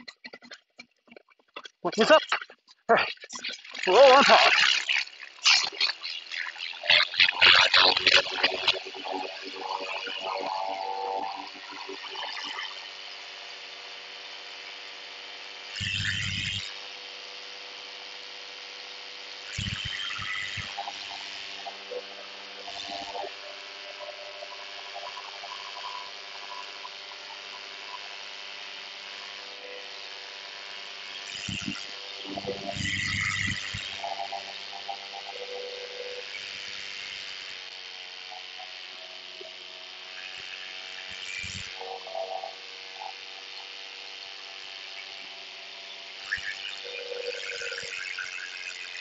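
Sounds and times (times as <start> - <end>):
paramotor engine buzzing: 0.0 - 49.0.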